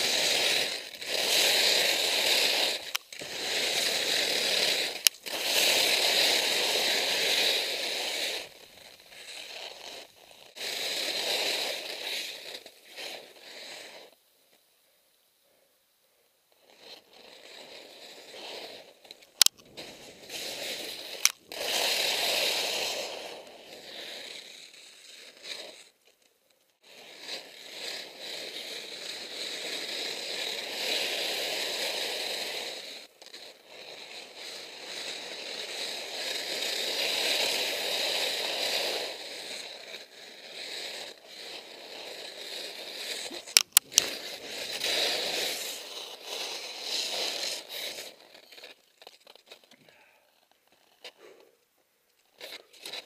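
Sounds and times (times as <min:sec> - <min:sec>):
skis scraping over snow: 0:00.0 - 0:14.2, 0:16.6 - 0:51.4, 0:52.2 - 0:53.0
sharp clicks: 0:19.3 - 0:19.7, 0:21.2 - 0:21.4, 0:43.5 - 0:44.1.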